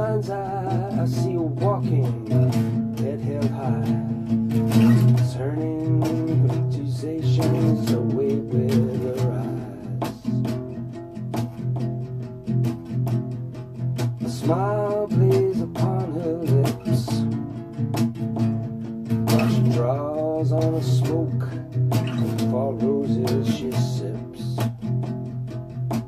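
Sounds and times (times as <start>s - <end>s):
acoustic guitar strumming: 0.0s - 26.0s.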